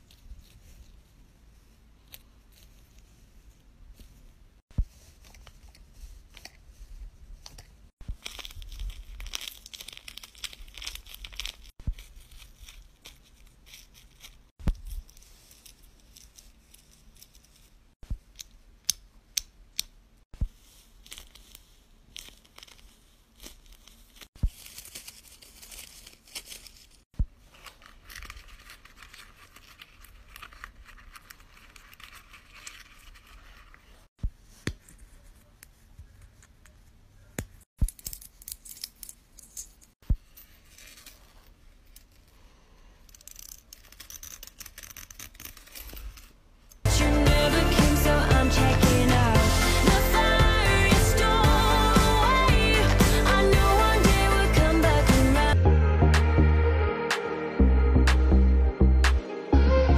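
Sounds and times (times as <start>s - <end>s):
paper and tape crinkling: 7.4s - 18.0s, 20.6s - 34.1s, 43.1s - 47.1s.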